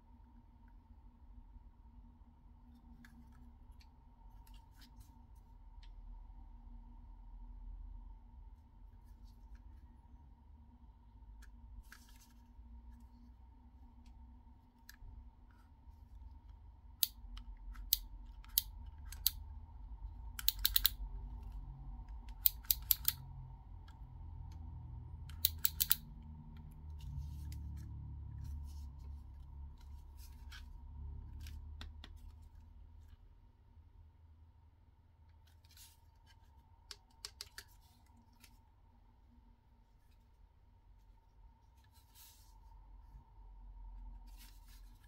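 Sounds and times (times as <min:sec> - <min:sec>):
sharp clicks: 0:20.4 - 0:21.0, 0:22.3 - 0:23.2, 0:25.3 - 0:26.1
low rubbing rumble: 0:26.4 - 0:31.8.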